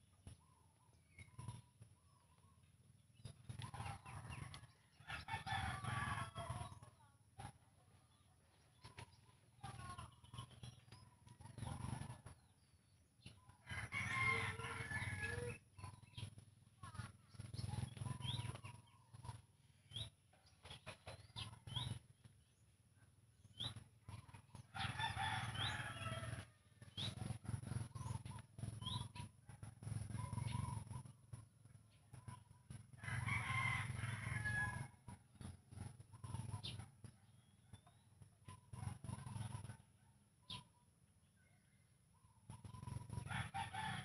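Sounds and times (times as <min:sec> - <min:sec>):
rooster crowing: 0:04.9 - 0:06.8, 0:13.6 - 0:15.6, 0:24.8 - 0:26.5, 0:33.0 - 0:34.9, 0:43.2 - 0:44.0.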